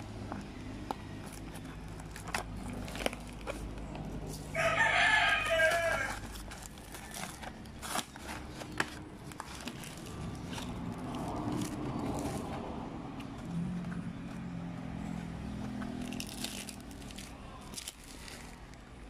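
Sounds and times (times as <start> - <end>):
cardboard packaging being torn: 1.2 - 12.6, 15.9 - 18.9
rooster crowing: 4.5 - 6.3.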